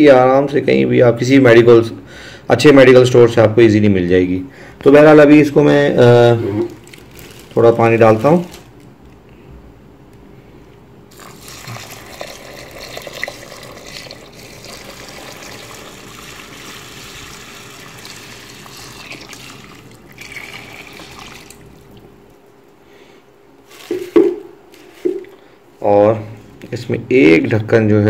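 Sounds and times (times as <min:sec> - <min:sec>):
water pouring into a bowl: 0:11.1 - 0:22.1.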